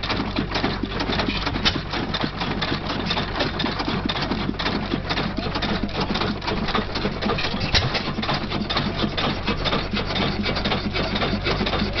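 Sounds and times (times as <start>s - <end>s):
stationary engine clattering: 0.0s - 12.0s
engine firing thump: 1.2s - 2.0s, 5.9s - 8.4s.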